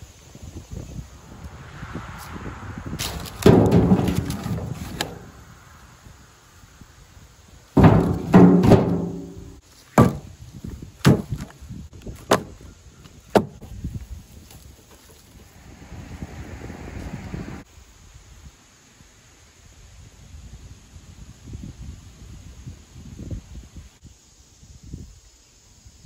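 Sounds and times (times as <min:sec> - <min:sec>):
wood-on-wood knocks: 0:03.0 - 0:05.3, 0:07.8 - 0:10.3, 0:11.0 - 0:11.5, 0:13.3 - 0:13.7
firewood thunking into plastic tub: 0:03.0 - 0:05.4, 0:07.8 - 0:10.3, 0:11.0 - 0:11.6, 0:12.2 - 0:12.6, 0:13.3 - 0:13.7.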